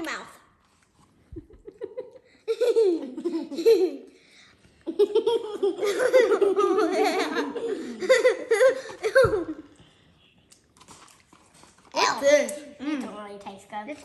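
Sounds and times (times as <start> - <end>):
children laughing: 1.4 - 4.2, 4.8 - 9.8.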